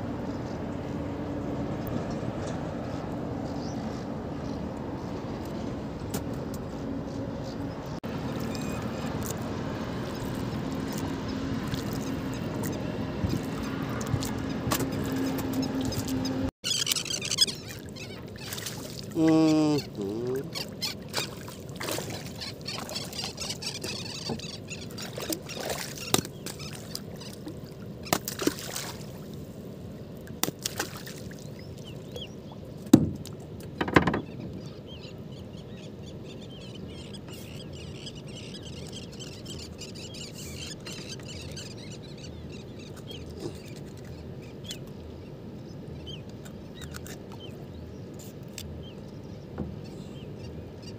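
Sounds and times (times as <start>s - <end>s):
water lapping against boat hull: 8.1s - 29.6s, 30.2s - 35.1s, 36.6s - 45.2s, 46.0s - 50.9s
knocks and clicks from boat: 13.2s - 17.2s, 22.8s - 26.7s, 32.8s - 34.7s, 49.5s - 50.0s.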